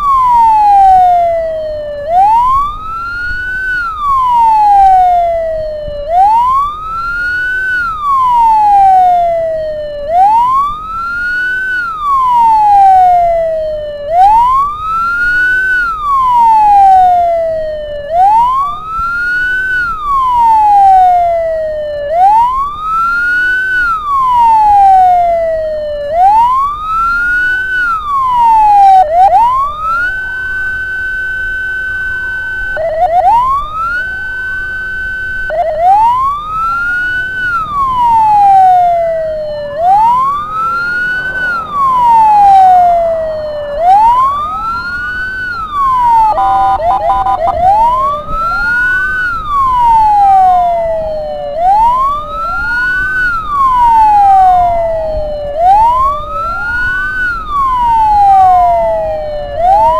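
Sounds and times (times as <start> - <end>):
ambulance siren wailing: 0.0 - 59.9
low steady rumble: 37.5 - 52.7.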